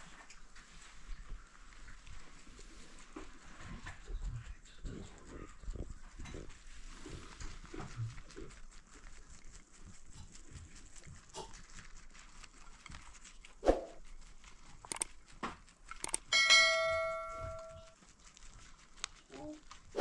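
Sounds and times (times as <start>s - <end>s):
struck metal object ringing: 16.3s - 17.9s.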